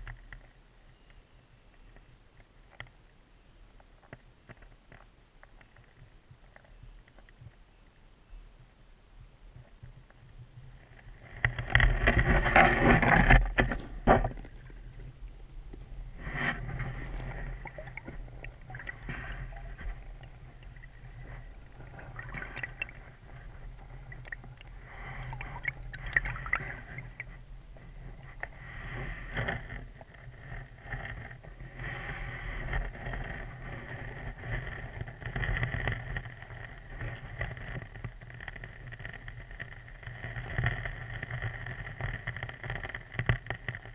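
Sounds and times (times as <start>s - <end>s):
muffled underwater stream rushing: 9.5s - 42.0s
camera knocking and scraping: 10.9s - 43.9s.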